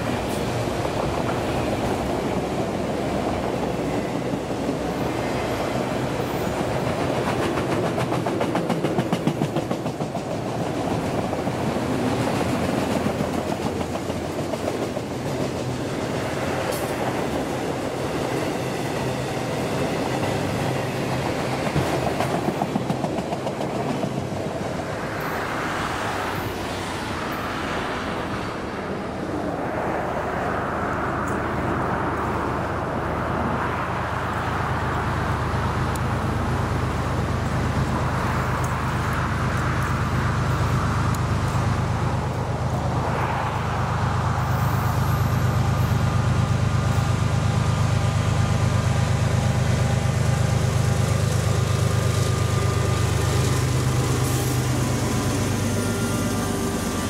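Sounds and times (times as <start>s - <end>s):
clickety-clack over rail joints: 0.0s - 25.4s, 34.6s - 42.9s
rumble of train wheels on rail: 0.0s - 57.0s.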